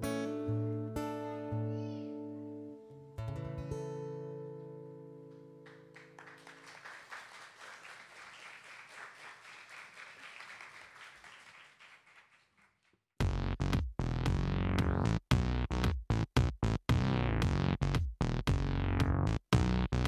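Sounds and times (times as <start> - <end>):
acoustic guitar chord ringing: 0.0 - 5.9
audience applause: 5.6 - 12.8.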